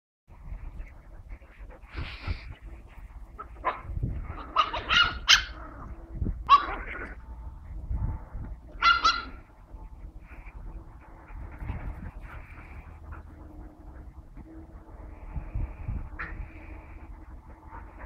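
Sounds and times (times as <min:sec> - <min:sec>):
dogs barking: 0:03.3 - 0:07.2, 0:08.6 - 0:09.8.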